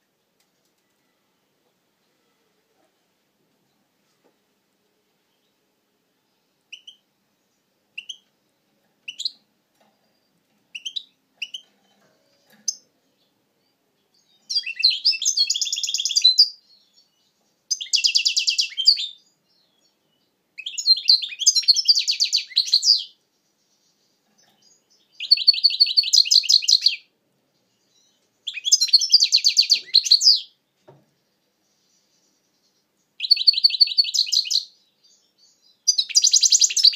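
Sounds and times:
goldfinch chirps: 0:06.7 - 0:07.1, 0:07.9 - 0:08.3, 0:09.0 - 0:09.5, 0:10.1 - 0:30.6, 0:31.6 - 0:36.9.

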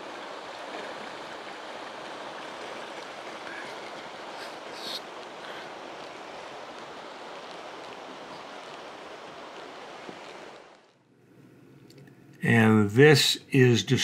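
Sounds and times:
river rushing over rocks: 0:00.0 - 0:10.9.

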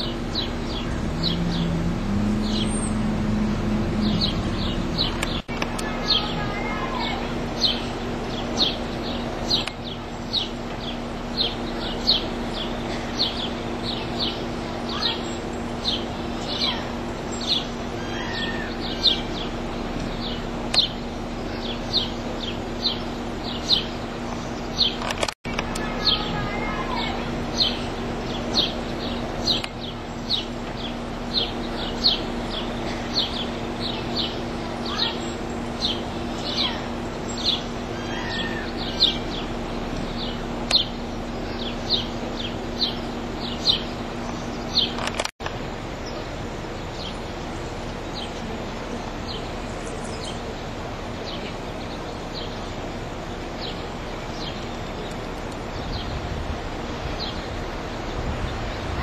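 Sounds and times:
bird chirping: 0:00.0 - 0:45.3
steady low hum: 0:00.0 - 0:59.0.

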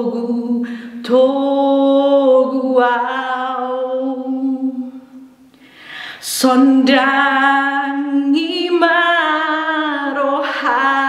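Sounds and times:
woman singing a hymn: 0:00.0 - 0:05.2, 0:06.1 - 0:11.0
singer breathing: 0:00.6 - 0:01.0, 0:05.5 - 0:06.3.

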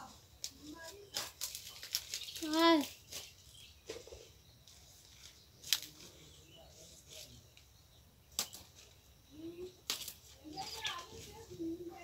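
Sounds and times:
faint distant voices: 0:00.0 - 0:12.0
leaves snapping: 0:00.4 - 0:03.3, 0:05.1 - 0:06.2, 0:08.3 - 0:08.9, 0:09.8 - 0:11.1.

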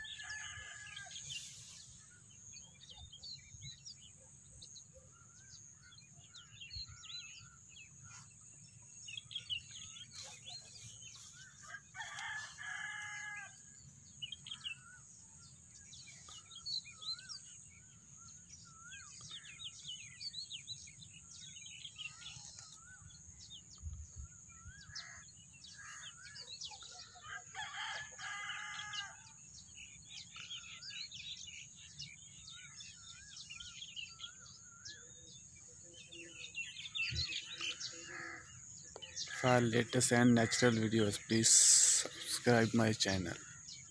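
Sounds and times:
small birds chirping: 0:00.0 - 0:43.9
rooster crowing: 0:11.6 - 0:13.6, 0:27.2 - 0:29.2.

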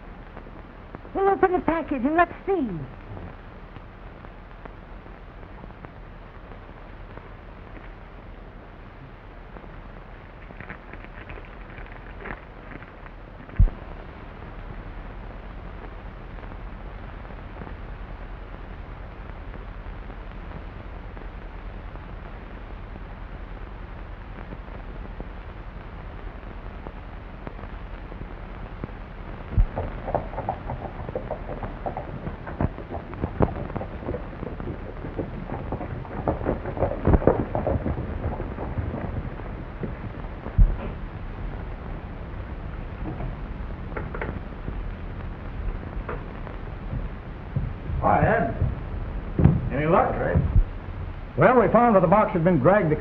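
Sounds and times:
film soundtrack hiss and hum: 0:00.0 - 0:53.0
horses hoofbeats: 0:10.0 - 0:13.8, 0:29.6 - 0:41.1, 0:45.7 - 0:50.7
loud knock: 0:49.4 - 0:49.8.

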